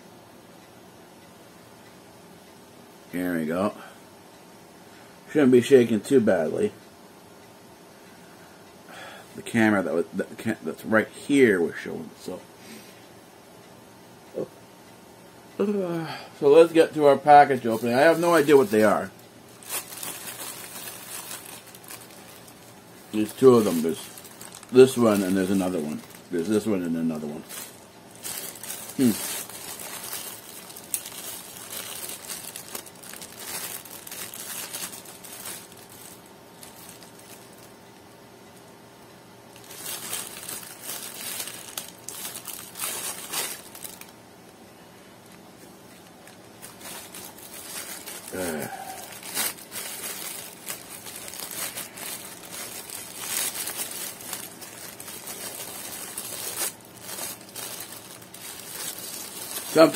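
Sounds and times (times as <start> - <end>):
plastic packaging crinkling: 16.6 - 38.0, 39.5 - 44.6, 45.2 - 59.9.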